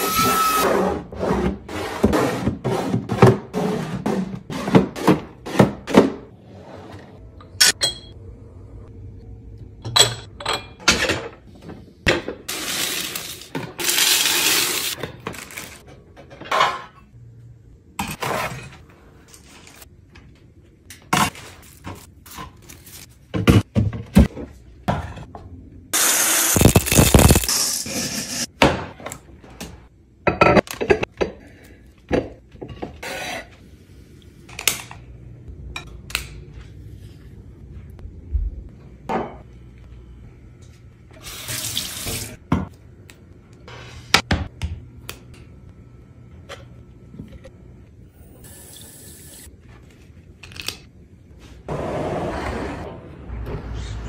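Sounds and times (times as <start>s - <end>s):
glass jars and dishes clinking: 7.6s - 8.2s.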